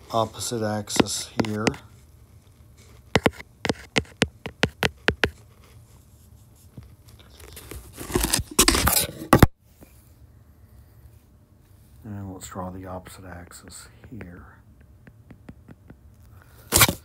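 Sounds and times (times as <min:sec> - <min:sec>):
stylus rubbing scrape: 0:00.0 - 0:02.0, 0:02.7 - 0:05.9, 0:07.4 - 0:09.5.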